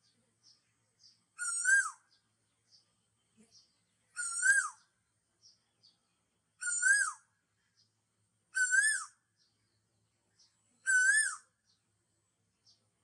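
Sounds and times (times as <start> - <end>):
high wavering whistled call: 1.4 - 2.1, 4.2 - 4.8, 6.6 - 7.3, 8.6 - 9.2, 10.8 - 11.5.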